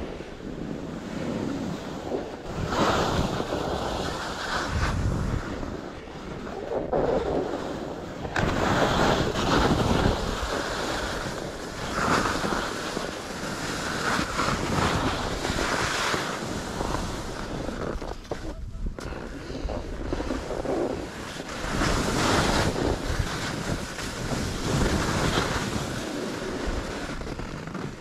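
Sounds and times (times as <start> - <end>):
wind rushing over microphone: 0.0 - 28.0
skis scraping across hard snow: 0.1 - 28.0.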